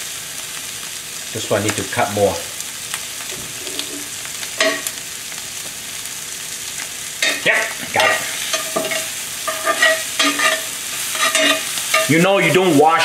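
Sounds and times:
vegetables sizzling in a skillet: 0.0 - 13.0
metal spatula scraping a pan: 7.2 - 13.0.

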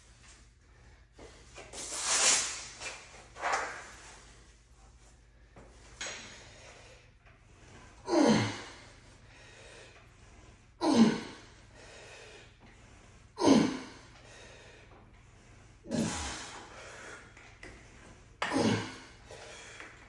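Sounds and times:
quiet breathing: 4.2 - 18.4, 19.0 - 20.0.

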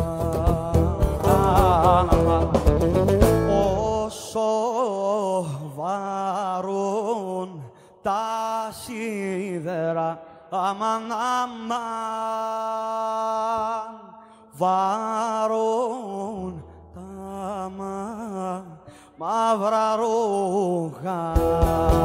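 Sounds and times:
band playing lute bass and drums: 0.0 - 4.0, 21.4 - 22.0
man singing alone: 0.0 - 22.0.

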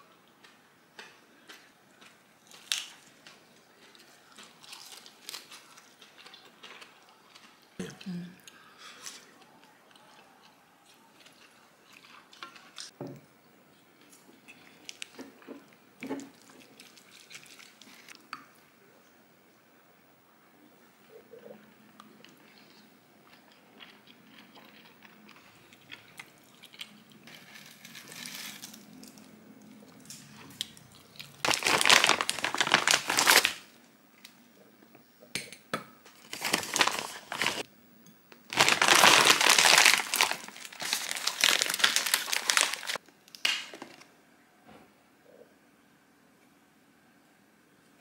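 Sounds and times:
plastic packaging crinkling: 31.2 - 33.7, 36.2 - 37.6, 38.4 - 44.1.

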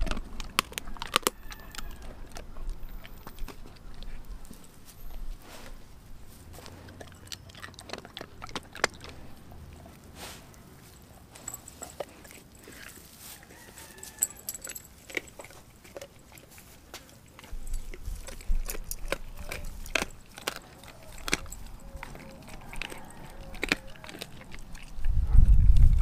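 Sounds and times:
dog crunching on bone: 0.0 - 26.0.

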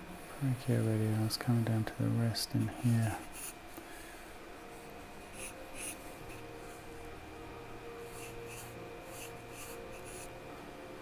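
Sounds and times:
charcoal scratching on paper: 2.6 - 3.6, 5.2 - 6.0, 8.0 - 10.4.

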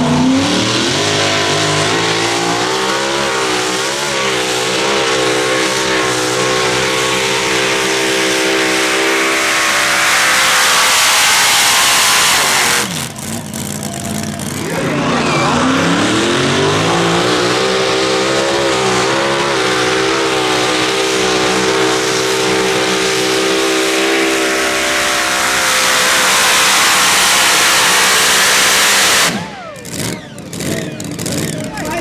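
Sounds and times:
engine at full throttle: 0.0 - 32.0.

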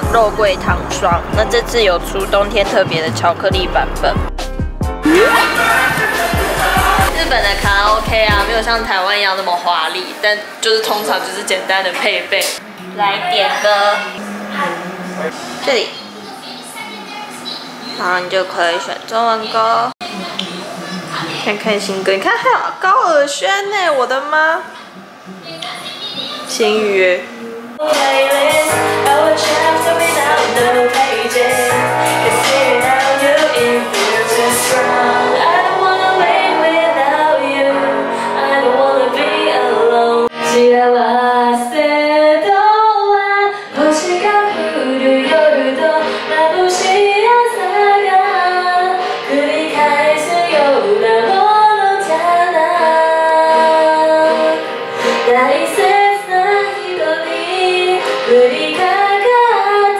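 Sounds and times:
karaoke backing track: 0.0 - 9.0, 24.8 - 59.9
woman singing into a microphone: 26.4 - 59.9.

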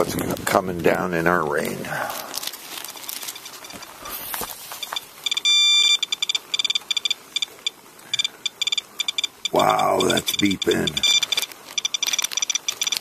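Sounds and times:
faint handling rustle: 0.0 - 5.4
dosimeter beeping: 4.8 - 13.0
rapid irregular short beeps: 4.8 - 13.0.

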